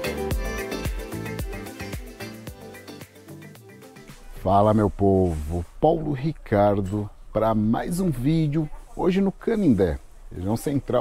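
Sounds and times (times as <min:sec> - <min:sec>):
music with a steady beat: 0:00.0 - 0:04.4.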